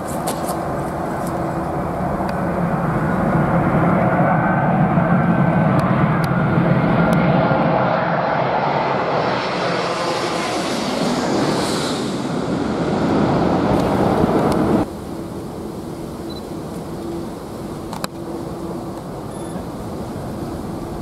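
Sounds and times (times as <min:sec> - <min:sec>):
jet airliner passing overhead: 0:00.0 - 0:21.0.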